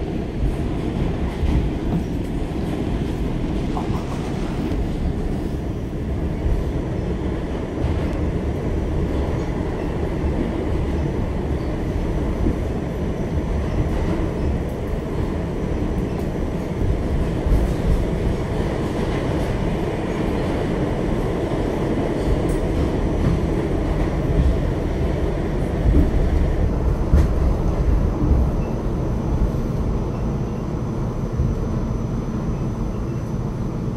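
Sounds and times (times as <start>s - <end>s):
subway train wheels rumbling: 0.0s - 33.9s.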